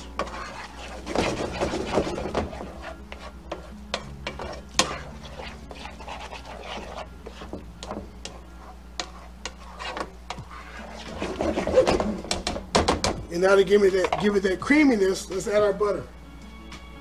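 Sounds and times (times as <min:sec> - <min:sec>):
spoon scraping a metal pan: 0:00.0 - 0:12.6, 0:13.6 - 0:14.4.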